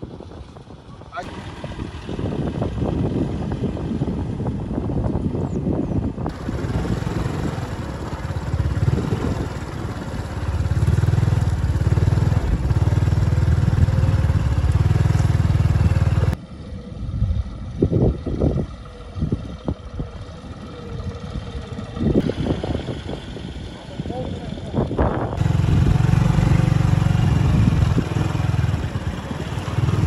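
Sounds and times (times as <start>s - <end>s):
vehicle engine running: 0.0s - 30.0s.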